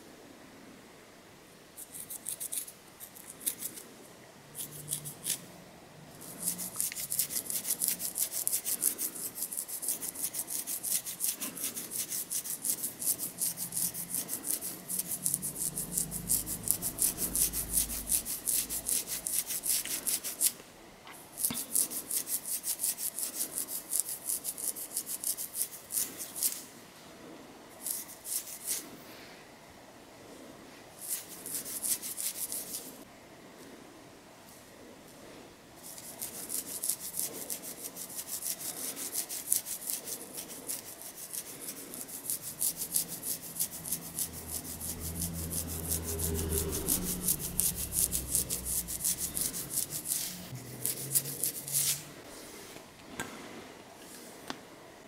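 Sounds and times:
fingernails scratching scalp: 0:01.8 - 0:03.8, 0:04.6 - 0:05.4, 0:06.2 - 0:20.6, 0:21.4 - 0:26.6, 0:27.8 - 0:28.8, 0:31.0 - 0:33.0, 0:35.8 - 0:52.0
low rumble: 0:15.0 - 0:19.2, 0:42.4 - 0:52.3.

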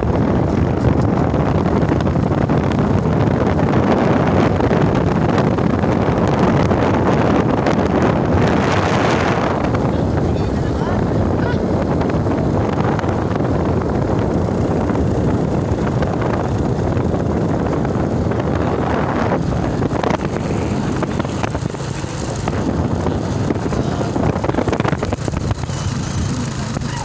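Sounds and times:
vehicle rumble: 0:00.0 - 0:27.0
wind buffeting microphone: 0:00.0 - 0:27.0.

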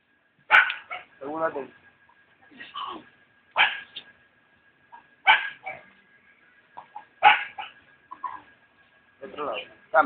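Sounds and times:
dog barking: 0:00.5 - 0:01.1, 0:03.6 - 0:04.0, 0:05.2 - 0:05.9, 0:07.2 - 0:07.8.

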